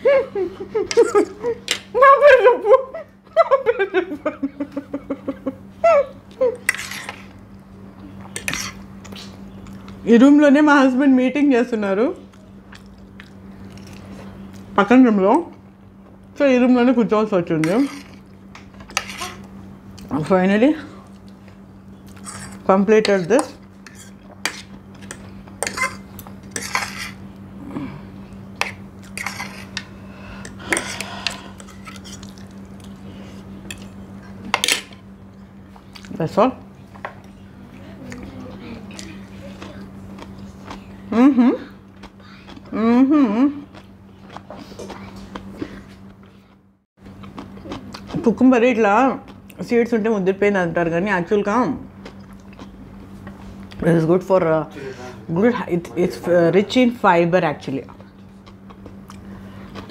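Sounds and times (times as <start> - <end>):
woman giggling: 0.0 - 6.7
steady low hum: 0.0 - 59.9
cutlery scraping a ceramic plate: 6.7 - 7.3, 17.6 - 18.2, 18.9 - 19.4, 22.2 - 27.2, 28.6 - 29.8.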